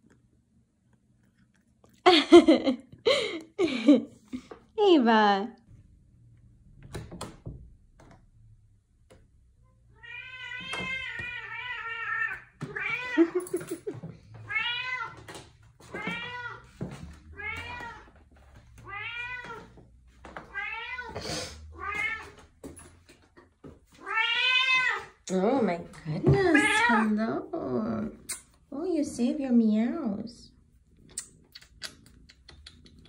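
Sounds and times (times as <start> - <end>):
cat meowing: 9.9 - 13.3, 14.4 - 15.2, 17.3 - 18.1, 18.8 - 19.8, 20.5 - 22.4, 24.0 - 25.2, 26.5 - 27.1.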